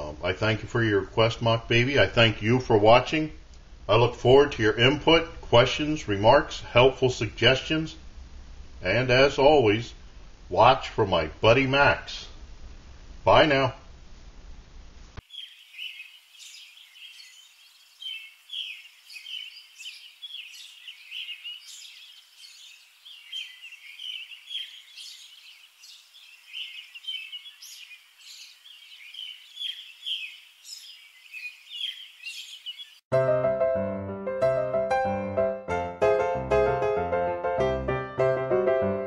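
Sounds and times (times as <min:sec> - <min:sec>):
birds chirping: 0:15.2 - 0:33.1.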